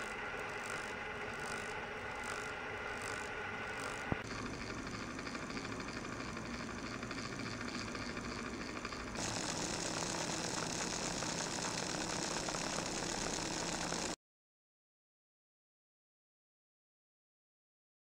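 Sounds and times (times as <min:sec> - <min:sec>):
small electric motor whirring: 0:00.0 - 0:14.2.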